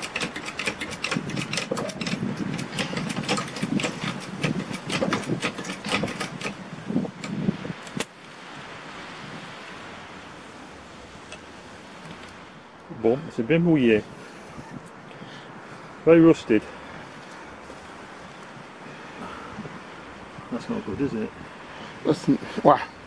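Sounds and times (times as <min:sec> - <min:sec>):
jack knocking on ground: 0:00.1 - 0:06.6.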